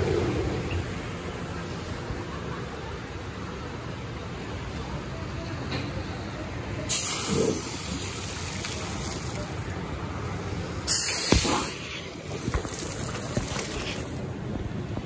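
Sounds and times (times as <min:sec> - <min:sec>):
hissing spray blasts: 0:06.9 - 0:09.7, 0:10.8 - 0:14.2
water rushing: 0:07.2 - 0:14.3.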